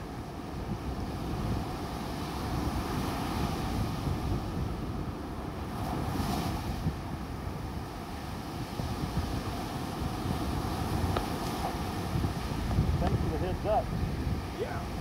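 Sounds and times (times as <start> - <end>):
surf waves breaking on beach: 0.0 - 15.0
wind buffeting microphone: 0.0 - 15.0.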